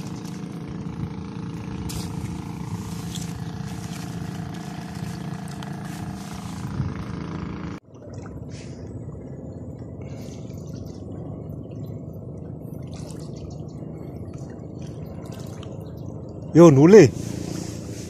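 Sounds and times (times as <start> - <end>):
motor running: 0.0 - 7.8
steady low rumble: 0.0 - 18.0
water lapping at shore: 0.0 - 18.0.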